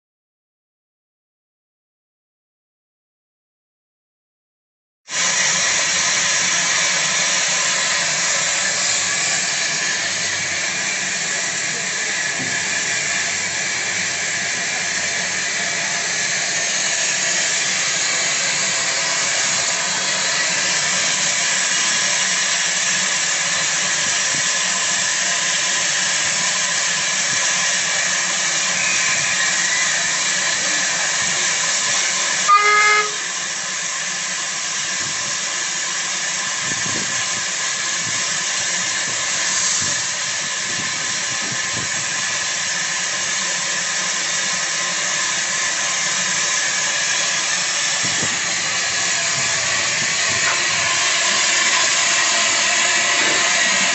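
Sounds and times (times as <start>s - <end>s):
steam locomotive hissing: 5.1s - 53.9s
short whistle note: 32.5s - 33.4s.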